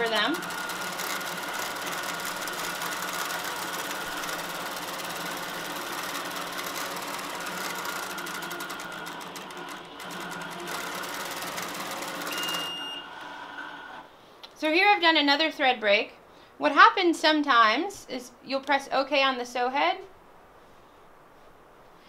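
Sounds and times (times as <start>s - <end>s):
quilting machine stitching: 0.0s - 14.0s.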